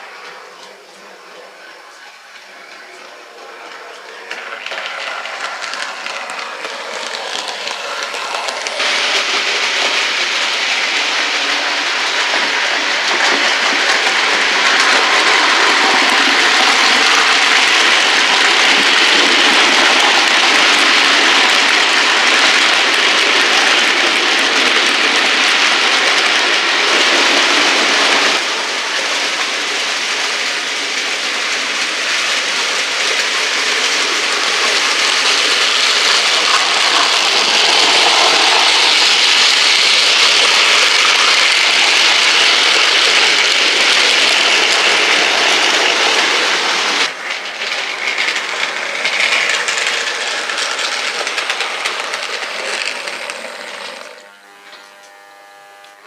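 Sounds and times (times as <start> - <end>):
model train wheels rattling: 0.0 - 54.3.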